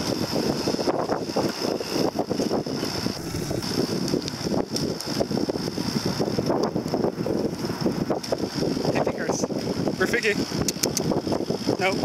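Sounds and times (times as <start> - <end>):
wind buffeting microphone: 0.0 - 12.0
high-pitched hiss: 2.8 - 4.2.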